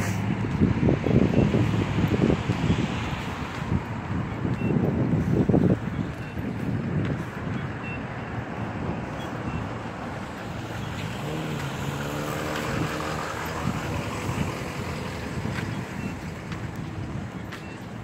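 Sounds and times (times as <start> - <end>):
traffic noise: 0.0 - 18.0
wind on microphone: 0.0 - 18.0
vehicle engine passing: 10.1 - 16.5.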